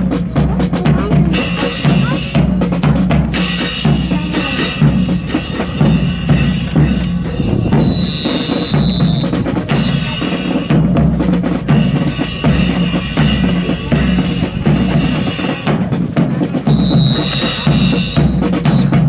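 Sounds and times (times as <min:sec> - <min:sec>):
marching drum cadence: 0:00.0 - 0:19.0
high whistle blast: 0:07.6 - 0:09.4, 0:16.7 - 0:19.0.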